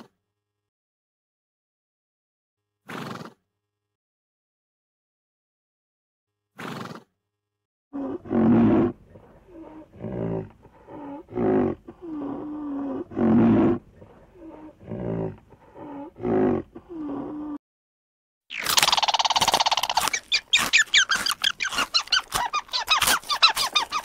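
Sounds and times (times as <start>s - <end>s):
large animal roaring grunts: 8.0s - 17.6s.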